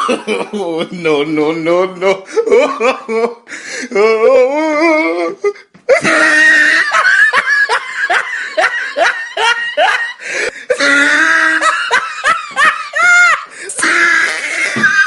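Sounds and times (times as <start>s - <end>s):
person laughing: 0.0s - 1.3s, 2.0s - 15.0s.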